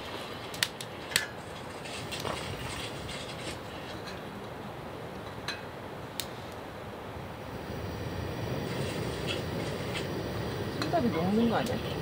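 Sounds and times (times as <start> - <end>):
gas burner hissing: 7.4 - 12.0.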